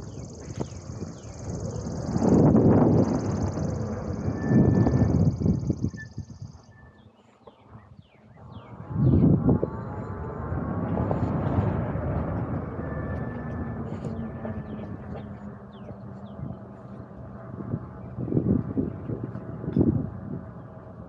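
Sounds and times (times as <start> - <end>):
small birds chirping: 0.0 - 9.3
wind buffeting microphone: 0.0 - 21.0.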